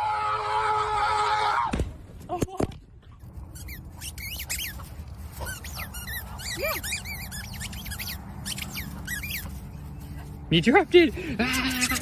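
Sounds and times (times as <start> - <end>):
rapid high-pitched squeaks: 3.4 - 10.3, 11.5 - 12.0.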